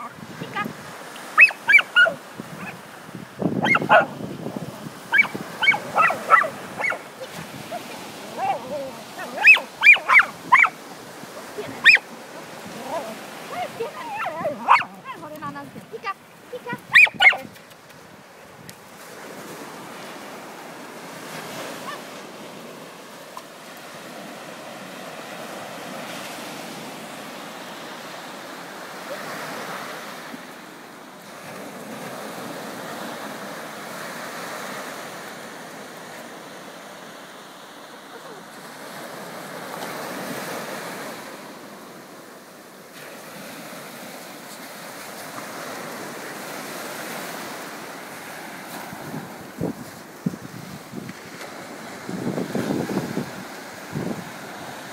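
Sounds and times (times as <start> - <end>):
surf washing up a sandy beach: 0.0 - 54.9.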